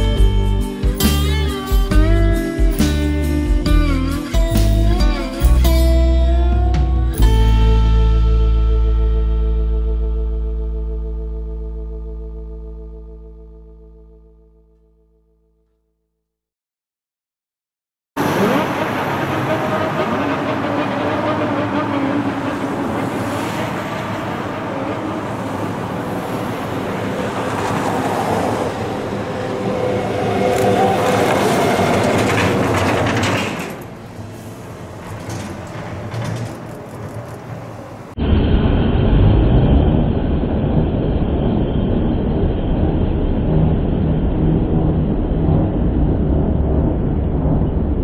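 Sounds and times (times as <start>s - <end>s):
hum of road traffic: 0.0s - 15.0s, 18.2s - 48.0s
car passing: 18.2s - 48.0s
heavy truck engine approaching: 18.2s - 48.0s.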